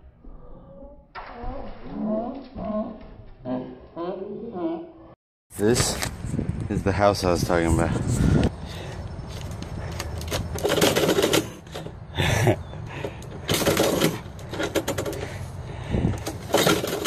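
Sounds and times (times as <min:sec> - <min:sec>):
envelopes scraping through mail slot: 0:10.1 - 0:11.8, 0:16.3 - 0:17.0.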